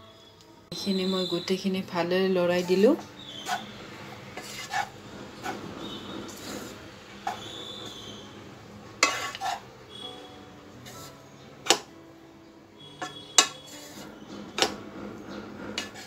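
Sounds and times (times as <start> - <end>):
wooden spatula stirring rice: 2.6 - 10.0, 10.8 - 11.9, 13.0 - 16.0
spatula knocking against pan: 13.0 - 16.0.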